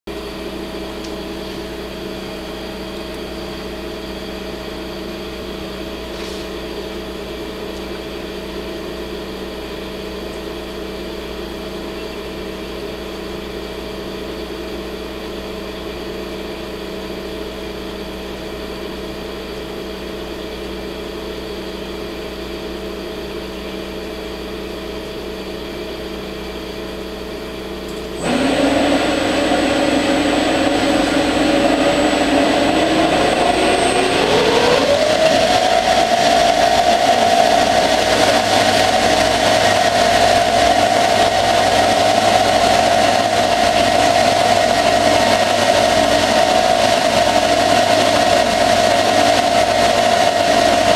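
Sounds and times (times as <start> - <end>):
high steady whine: 0.1 - 50.9
lathe humming: 28.2 - 50.9.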